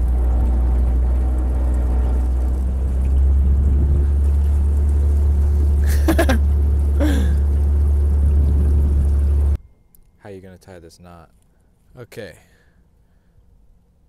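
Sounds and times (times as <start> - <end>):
low motor hum: 0.0 - 9.6.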